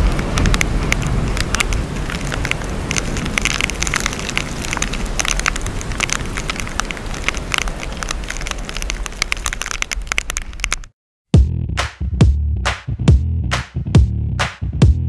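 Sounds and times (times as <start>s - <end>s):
heavy rain tapping on camera: 0.0s - 10.9s
low rumble: 11.4s - 15.0s.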